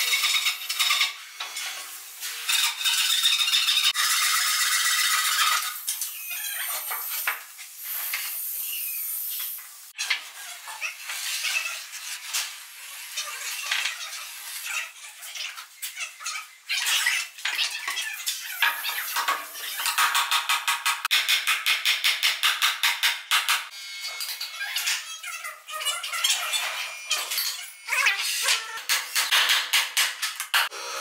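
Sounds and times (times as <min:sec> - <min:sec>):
spray foam hissing and squeaking: 0:00.0 - 0:20.0.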